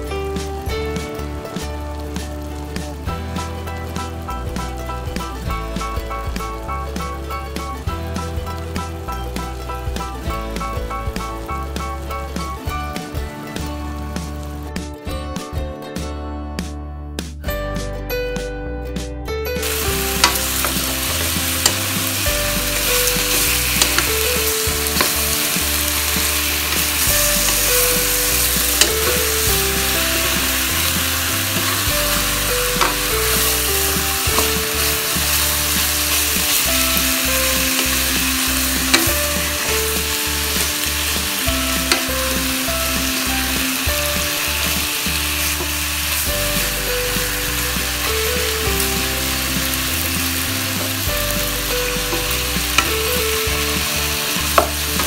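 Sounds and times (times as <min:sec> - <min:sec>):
pork sizzling in a wok: 0:00.0 - 0:14.9, 0:19.6 - 0:55.0
quiet background music: 0:00.0 - 0:55.0
wooden spatula clicking on pan: 0:19.6 - 0:42.6, 0:54.4 - 0:55.0.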